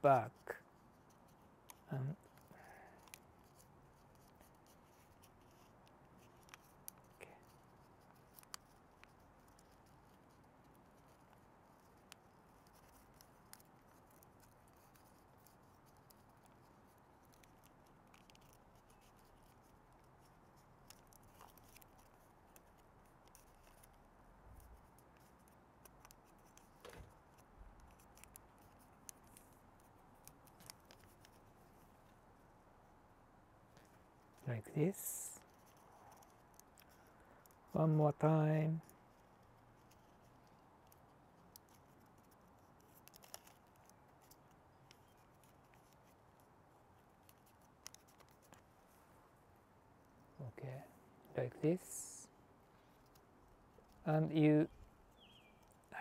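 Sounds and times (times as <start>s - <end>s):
paper crinkling while folded: 0.4s - 24.0s, 34.2s - 37.8s, 38.7s - 49.0s.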